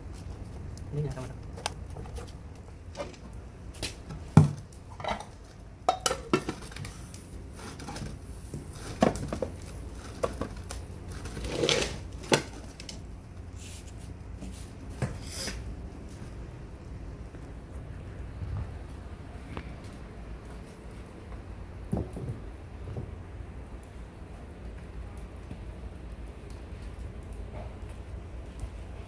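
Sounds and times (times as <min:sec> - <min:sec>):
metal plate clinking on pot: 0:05.9 - 0:06.6.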